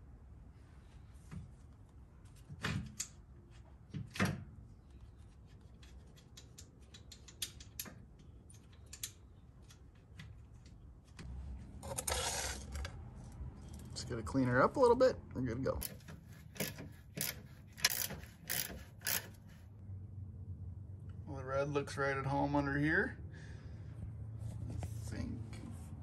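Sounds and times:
small metallic clicks: 5.7 - 10.8, 15.8 - 19.6.

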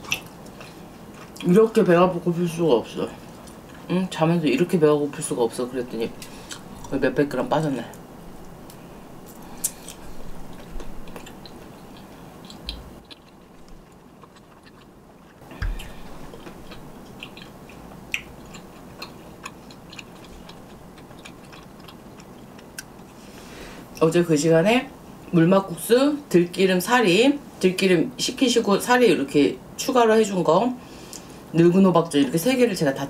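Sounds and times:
quiet chewing: 0.0 - 1.6, 3.2 - 3.9, 6.1 - 7.0, 7.9 - 23.2.

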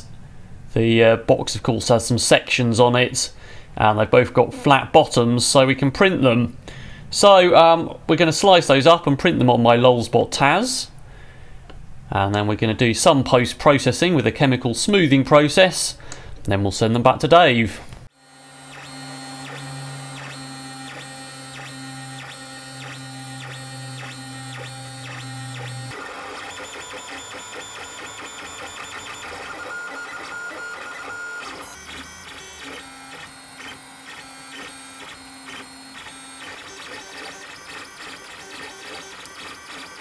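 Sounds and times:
stepper motors whining: 18.2 - 40.0.

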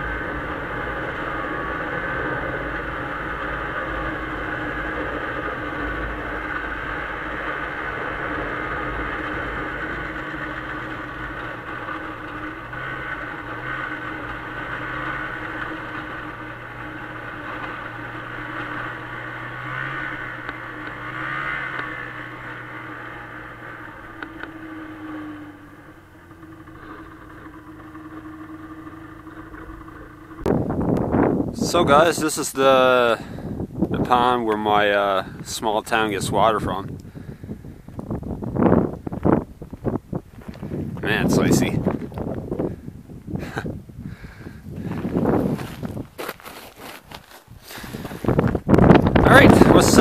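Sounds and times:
snowmobile engine running: 0.0 - 50.0.

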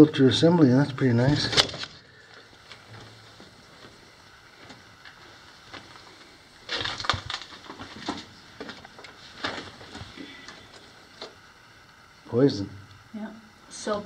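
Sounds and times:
footsteps crunching on loose rock: 2.5 - 10.2.

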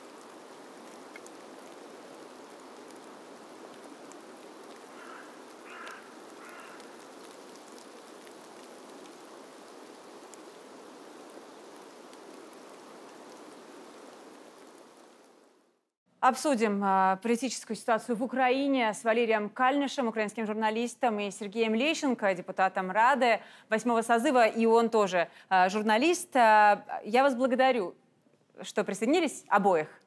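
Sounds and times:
steady hiss: 0.0 - 15.8
faint ticks: 0.2 - 1.8, 3.8 - 9.2
short bird-like calls: 4.9 - 7.0.

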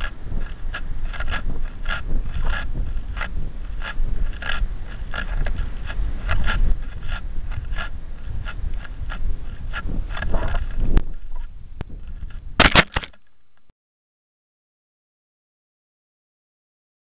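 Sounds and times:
wind rushing over camera: 0.0 - 13.2
short rustling clicks: 12.0 - 13.7.

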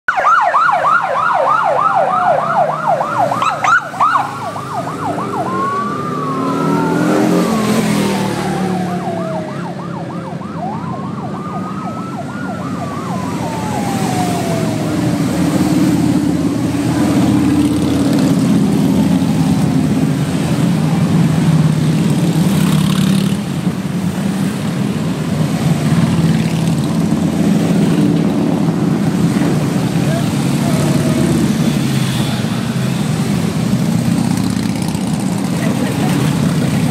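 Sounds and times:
siren wailing: 0.1 - 21.8, 27.2 - 32.3
motorcycle engines droning past: 2.8 - 9.8, 12.0 - 23.6, 25.5 - 36.9.

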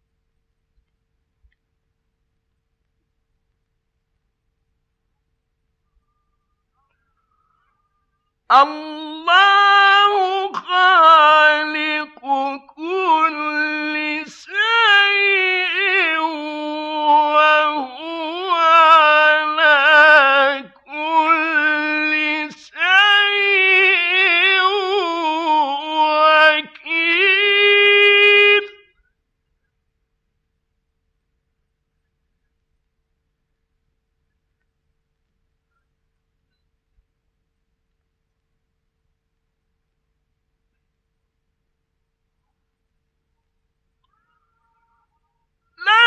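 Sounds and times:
man reciting melodically: 8.5 - 29.0, 45.8 - 46.0.

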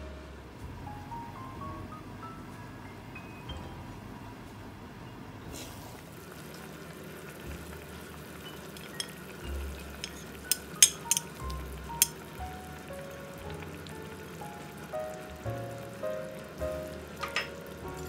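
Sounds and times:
light background music: 0.0 - 5.8, 7.3 - 18.0
braise sizzling: 5.5 - 18.0
dish clinking against pan: 10.0 - 11.3, 17.2 - 18.0.

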